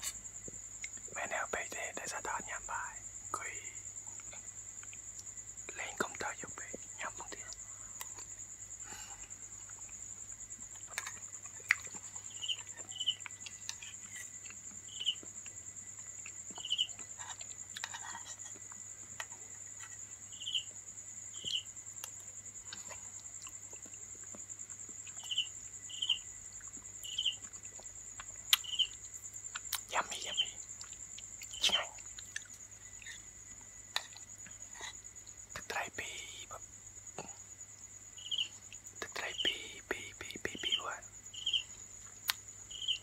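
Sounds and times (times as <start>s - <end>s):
insect chirps: 0.0s - 43.0s
insects trilling: 0.0s - 43.0s
close-up chewing: 9.5s - 20.0s, 21.4s - 25.4s, 26.4s - 29.9s, 30.7s - 35.0s.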